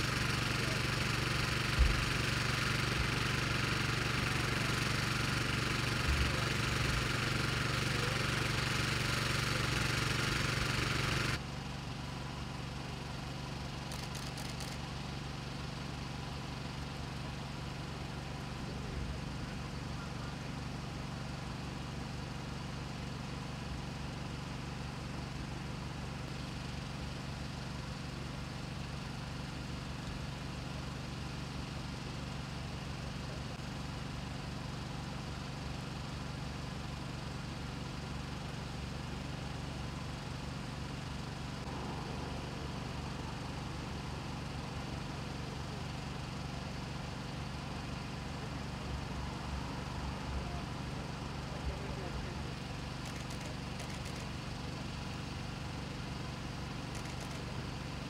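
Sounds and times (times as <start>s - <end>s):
engine idling: 0.0s - 58.0s.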